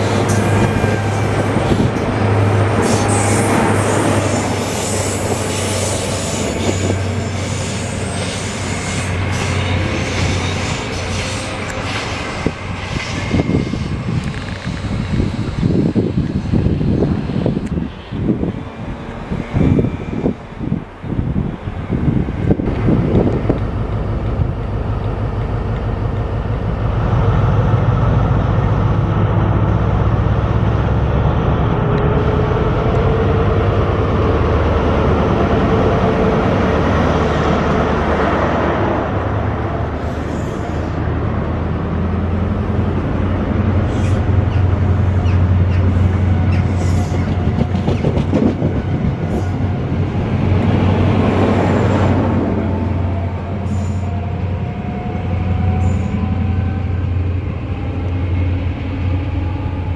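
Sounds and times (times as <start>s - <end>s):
deep diesel engine hum: 39.2s - 46.9s
train wheel clicks and squeaks: 43.9s - 49.6s.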